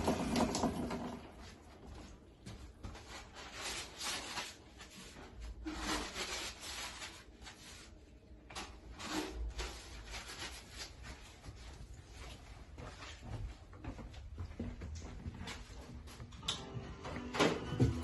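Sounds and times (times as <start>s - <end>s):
paper towel rustling: 1.4s - 13.3s.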